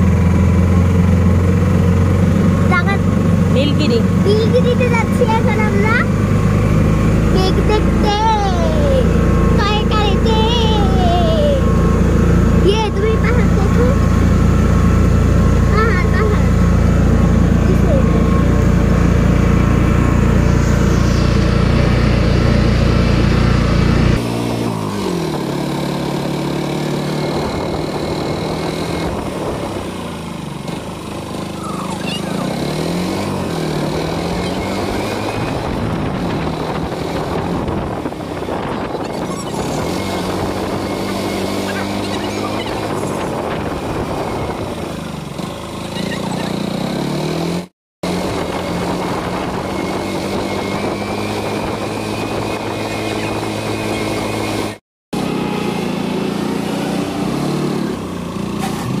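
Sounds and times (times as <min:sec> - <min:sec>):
vehicle engine rumbling: 0:00.0 - 0:59.0.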